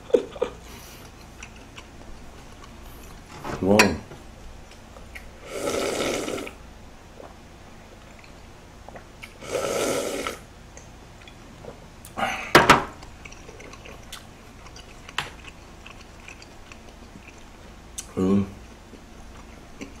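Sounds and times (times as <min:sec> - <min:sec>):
slurping broth: 0:05.4 - 0:06.6, 0:09.2 - 0:10.4.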